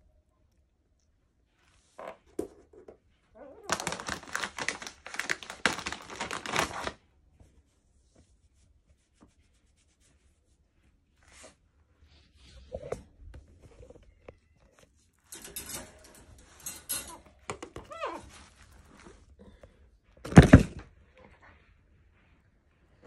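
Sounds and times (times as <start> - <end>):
rustling: 1.3 - 23.0
light metal clattering: 15.2 - 18.6.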